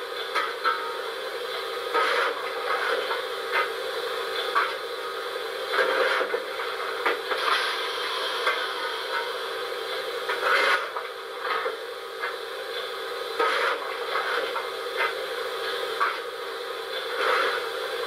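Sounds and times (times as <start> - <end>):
steady hum from loudspeaker: 0.0 - 18.0
hissing steam puffs: 7.2 - 10.9.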